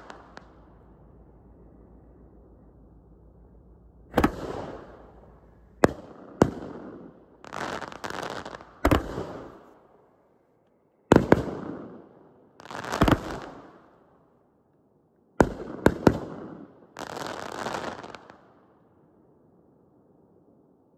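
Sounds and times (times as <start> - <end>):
fireworks crackling: 0.0 - 3.0, 4.1 - 6.8, 7.4 - 9.6
fireworks bangs: 0.0 - 9.7.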